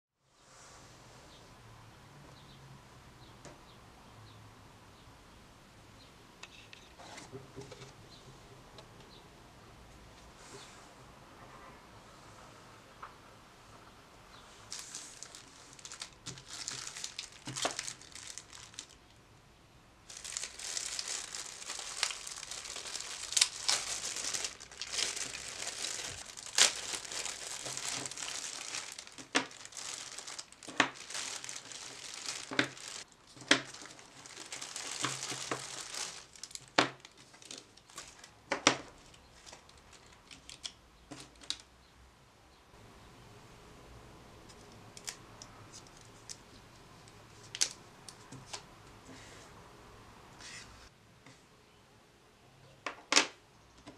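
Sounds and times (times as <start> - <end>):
plastic wrapping crinkling and tearing: 14.7 - 19.2, 20.1 - 41.7, 47.4 - 48.6.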